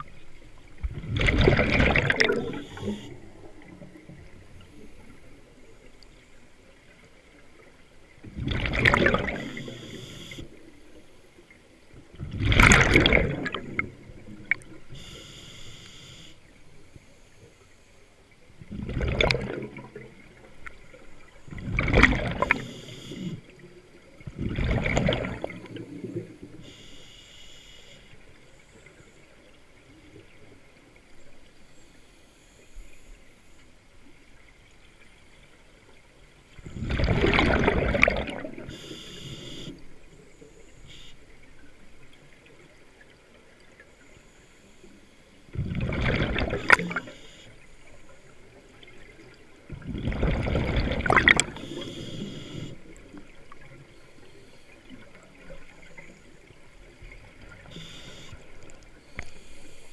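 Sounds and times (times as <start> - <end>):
exhaled bubbles gurgling: 0.0 - 6.0, 6.7 - 10.8, 12.0 - 15.3, 18.6 - 26.7, 36.5 - 40.1, 45.5 - 59.4
faint high hiss: 2.2 - 8.2, 9.2 - 11.6, 14.5 - 18.5, 22.4 - 24.1, 25.6 - 34.4, 38.6 - 42.0, 46.5 - 48.9, 51.3 - 56.8, 57.4 - 59.9.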